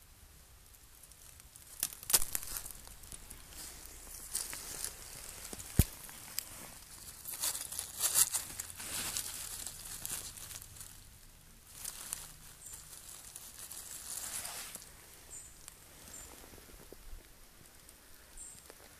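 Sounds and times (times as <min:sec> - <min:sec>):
dry leaves crackling and rustling: 0:00.7 - 0:18.9.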